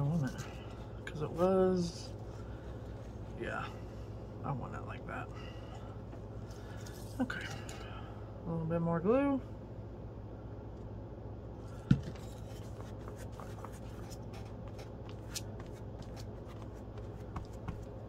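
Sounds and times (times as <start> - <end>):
brush scratching on paper: 12.4 - 17.8.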